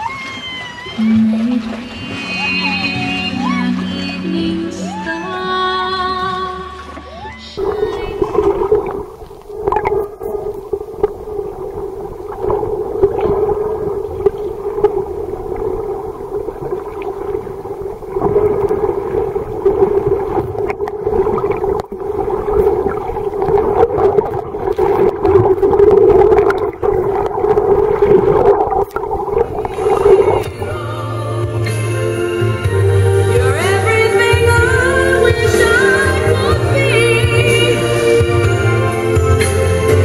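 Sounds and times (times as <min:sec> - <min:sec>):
whale calls: 0:00.0 - 0:05.9, 0:06.7 - 0:27.0.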